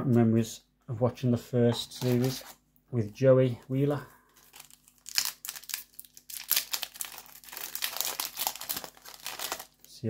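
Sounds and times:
foil wrapper crinkling and tearing: 0:04.3 - 0:10.0.

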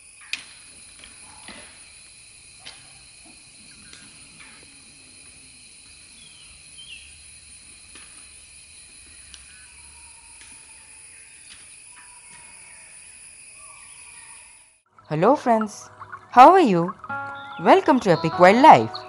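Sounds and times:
high insect drone: 0:00.0 - 0:19.0
bird chirps: 0:06.1 - 0:07.2, 0:09.0 - 0:19.0.

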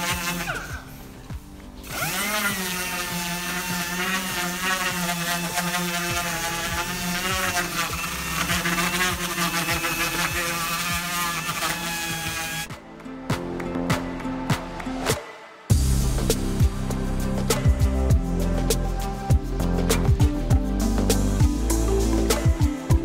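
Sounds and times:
orbital sander sanding wood: 0:00.0 - 0:12.7.

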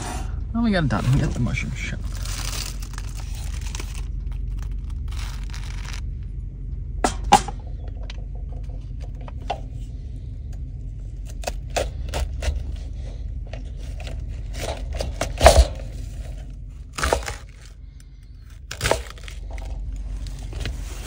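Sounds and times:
cabbage leaves rustling: 0:00.8 - 0:06.0, 0:18.7 - 0:21.0
plastic packaging crinkling: 0:01.0 - 0:06.1, 0:13.8 - 0:17.8, 0:18.4 - 0:21.0.

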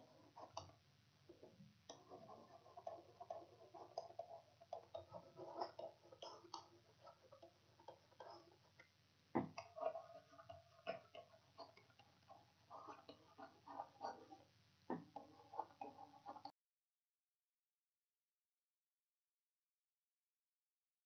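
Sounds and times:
stylus scratching on pen tablet: 0:00.0 - 0:00.8, 0:01.9 - 0:08.8, 0:09.4 - 0:16.5.

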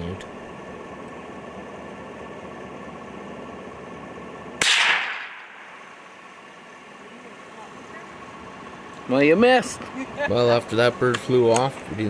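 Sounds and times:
steady background hum: 0:00.0 - 0:12.0
rifle shot: 0:04.6 - 0:05.9.

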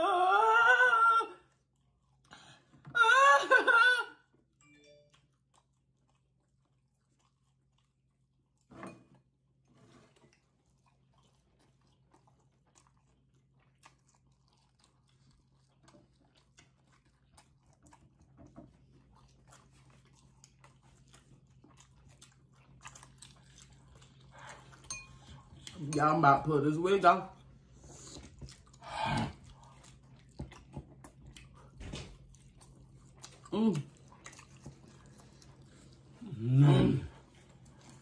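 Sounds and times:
person moaning: 0:00.0 - 0:01.4, 0:02.9 - 0:04.2, 0:33.5 - 0:33.9, 0:36.2 - 0:37.2
wet chewing: 0:05.0 - 0:08.7, 0:10.1 - 0:26.2, 0:27.3 - 0:38.0.

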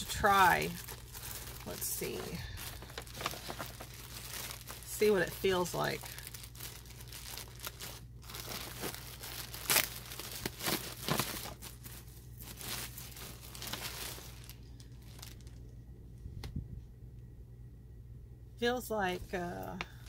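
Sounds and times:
packaging crinkling: 0:00.0 - 0:15.7.

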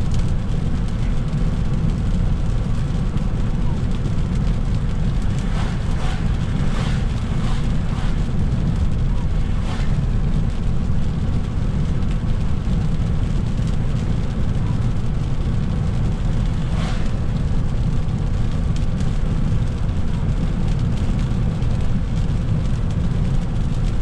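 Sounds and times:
tyre rumble on wet road: 0:00.0 - 0:24.0
brief swish: 0:05.4 - 0:08.3, 0:09.1 - 0:10.0, 0:16.5 - 0:17.2.

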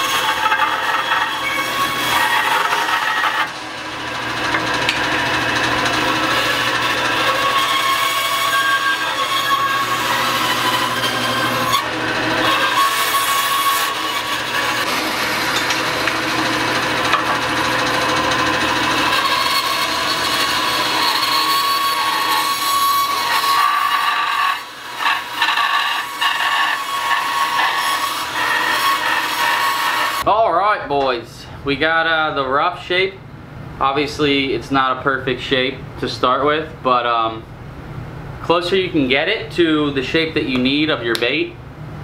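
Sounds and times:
bandsaw cutting wood: 0:00.0 - 0:30.3.

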